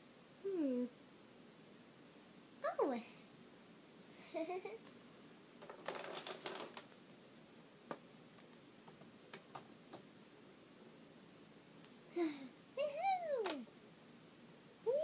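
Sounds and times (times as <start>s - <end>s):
rustling scrape: 5.6s - 7.1s
short high voice: 12.2s - 13.7s.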